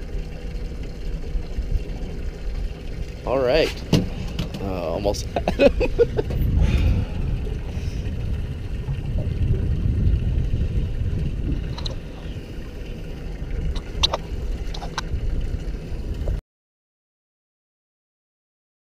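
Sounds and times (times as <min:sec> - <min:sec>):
wind on microphone: 0:03.6 - 0:16.4
gear clicks and knocks: 0:13.7 - 0:15.1.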